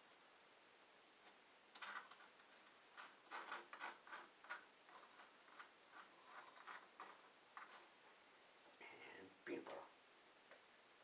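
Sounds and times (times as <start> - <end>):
small objects clicking and scraping: 1.2 - 8.0.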